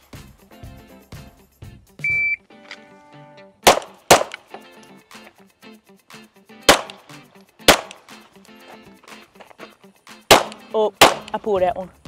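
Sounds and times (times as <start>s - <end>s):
shot timer beep: 2.0s - 2.4s
pistol shots: 3.6s - 4.5s, 6.7s - 8.1s, 10.3s - 11.4s.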